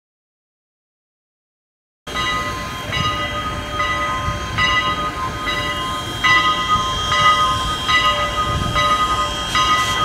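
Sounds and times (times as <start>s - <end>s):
steam locomotive bell ringing: 2.1s - 10.0s
steam locomotive exhaust chuffs: 2.1s - 10.0s.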